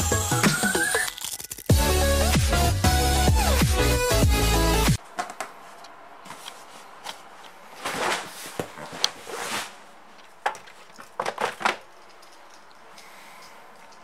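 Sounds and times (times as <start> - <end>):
papers rustling: 5.0 - 14.0.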